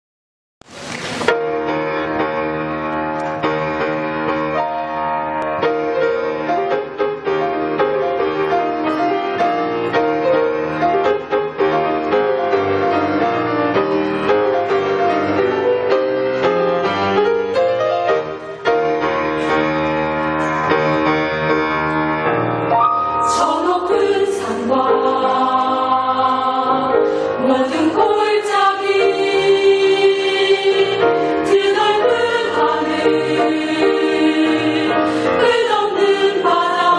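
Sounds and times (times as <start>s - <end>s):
piano accompaniment: 0.6s - 36.9s
choir singing a hymn: 23.2s - 36.9s.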